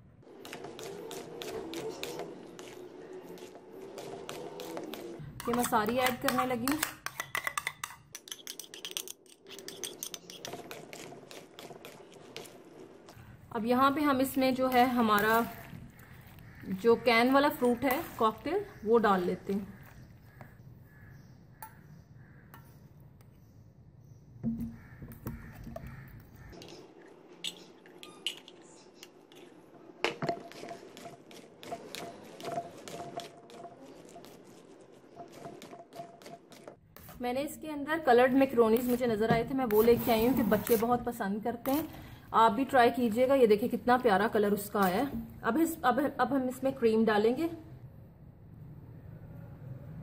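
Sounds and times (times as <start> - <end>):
spoon scraping a bowl: 0.4 - 13.2, 15.0 - 18.8, 30.2 - 37.2, 38.5 - 41.0.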